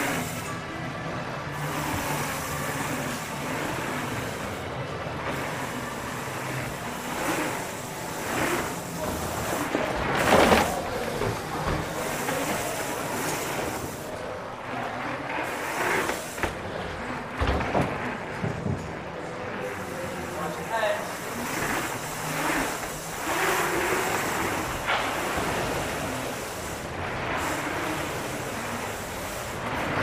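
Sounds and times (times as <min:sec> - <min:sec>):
tyres rolling on dirt trail: 0:01.5 - 0:30.0
bike knocks and rattles: 0:06.7 - 0:13.8, 0:15.0 - 0:19.7.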